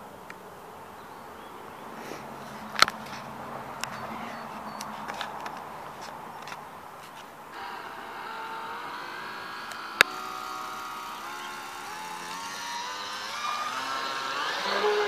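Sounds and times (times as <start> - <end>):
electric motor whining: 7.5 - 15.0.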